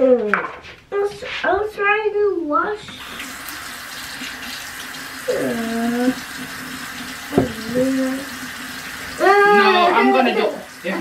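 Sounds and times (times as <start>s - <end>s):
tap running into sink basin: 6.0s - 10.0s.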